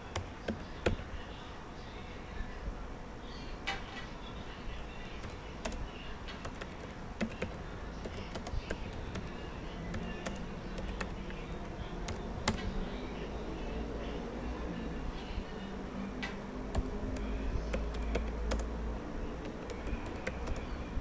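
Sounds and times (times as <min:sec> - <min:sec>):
keyboard typing: 0:00.0 - 0:01.1, 0:05.0 - 0:12.7, 0:16.7 - 0:18.8, 0:19.4 - 0:20.7
low background hum: 0:00.0 - 0:21.0.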